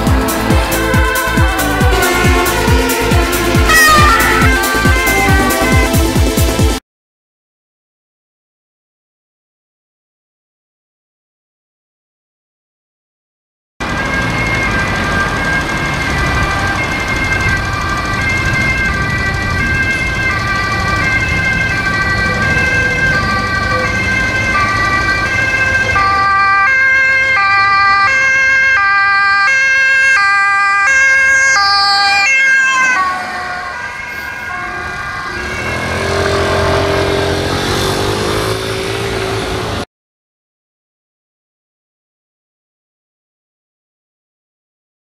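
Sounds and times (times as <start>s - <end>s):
ambulance two-tone siren: 0.0s - 6.8s, 13.8s - 39.9s
traffic engines rumbling: 0.0s - 6.8s, 13.8s - 39.9s.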